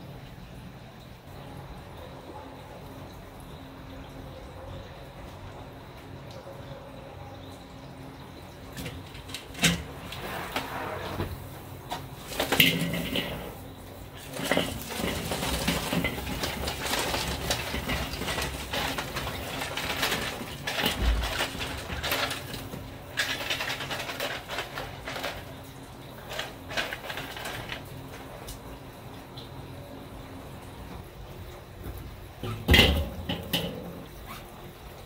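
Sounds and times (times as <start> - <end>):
burning charcoal crackling: 8.6 - 35.0.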